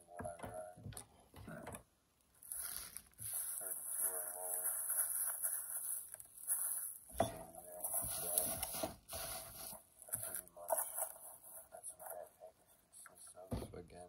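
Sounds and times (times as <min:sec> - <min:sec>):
bubble wrap rustling: 0:02.4 - 0:07.1, 0:07.8 - 0:11.6.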